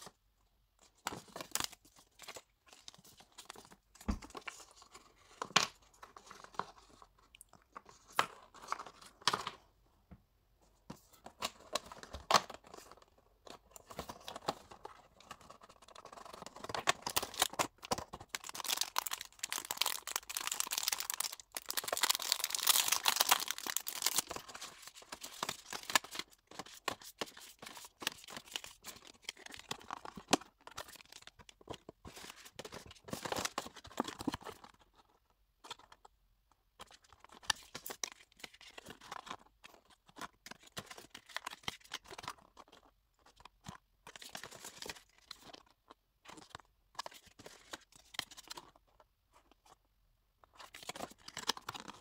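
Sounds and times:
paper and cardboard rustling: 0:10.6 - 0:36.0.

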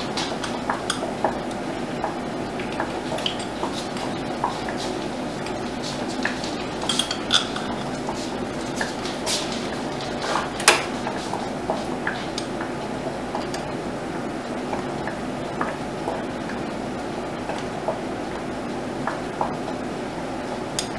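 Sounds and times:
steady background hum: 0:00.0 - 0:20.9.

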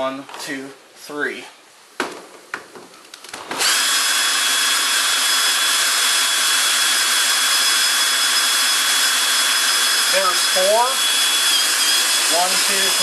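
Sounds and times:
cordless drill running: 0:03.4 - 0:13.0.

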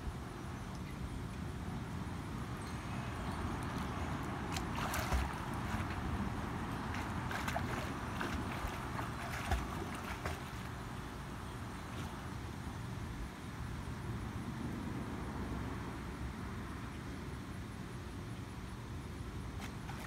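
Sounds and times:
steady low rumble: 0:00.0 - 0:11.9
swimmer splashing in pool: 0:04.4 - 0:10.8.

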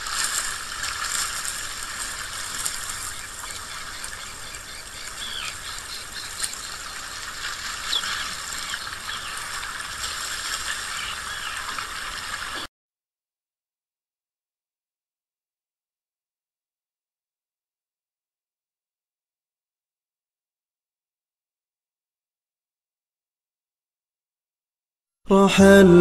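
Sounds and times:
running water rushing: 0:00.0 - 0:12.7.

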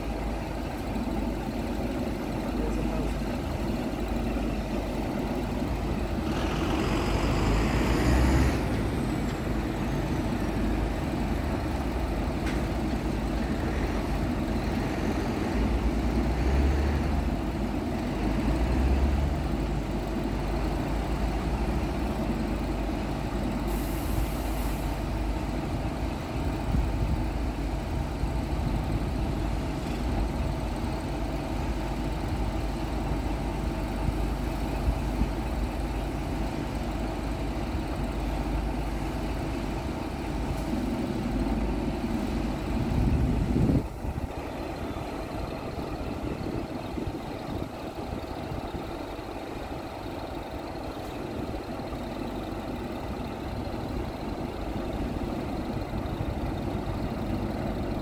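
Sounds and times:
truck diesel engine running: 0:00.0 - 0:58.0.

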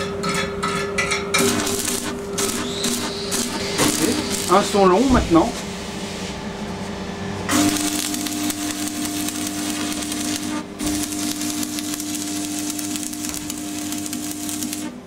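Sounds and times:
steady hum: 0:01.3 - 0:15.0
welding arc crackling: 0:01.4 - 0:05.1, 0:07.5 - 0:15.0.

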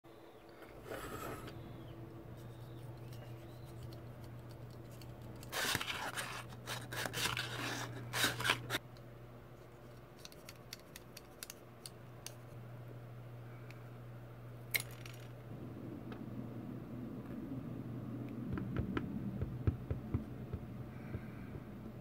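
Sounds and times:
low hum: 0:00.1 - 0:22.0
knife scraping wood: 0:05.4 - 0:08.8.

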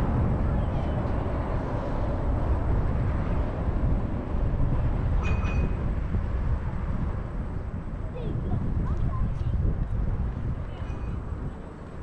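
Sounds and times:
moving vehicle rumble: 0:00.0 - 0:12.0.

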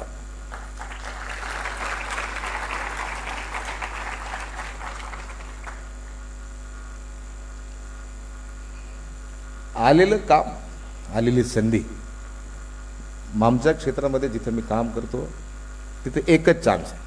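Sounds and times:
steady electrical hum: 0:00.0 - 0:17.0
audience applauding: 0:00.5 - 0:06.0.

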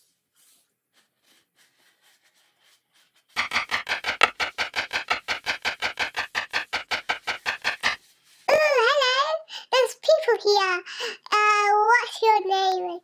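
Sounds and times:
rapid clicks: 0:03.4 - 0:08.0.

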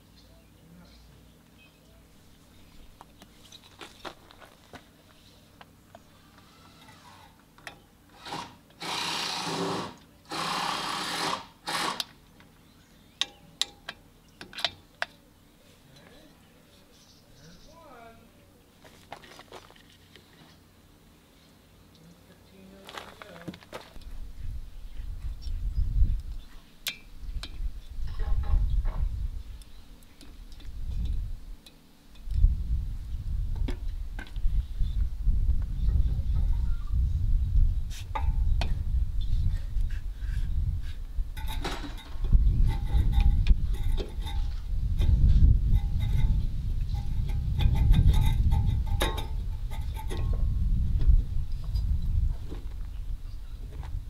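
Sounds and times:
metal rasping scrapes: 0:39.6 - 0:50.3
pliers and metal parts tapping: 0:41.4 - 0:50.4.

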